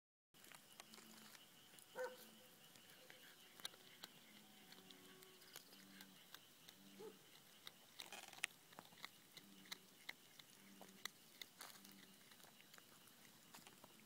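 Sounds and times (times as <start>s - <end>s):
cat chewing with crunching clicks: 0.4s - 14.0s.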